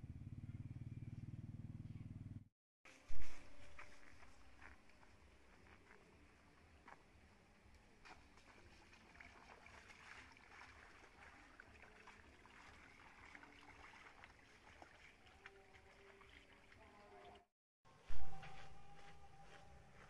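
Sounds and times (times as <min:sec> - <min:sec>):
feet splashing through water: 0:08.0 - 0:17.4
stream trickling: 0:08.0 - 0:17.5.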